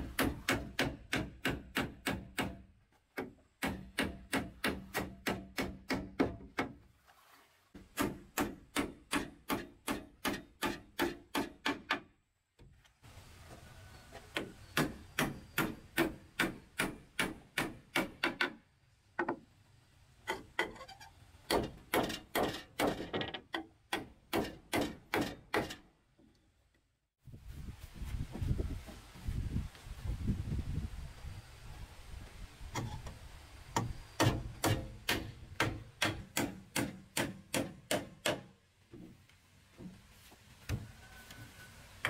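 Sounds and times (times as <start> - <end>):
hammer nailing wood: 0.0 - 6.8, 7.9 - 12.1, 14.3 - 18.6, 21.5 - 25.8, 33.8 - 38.6.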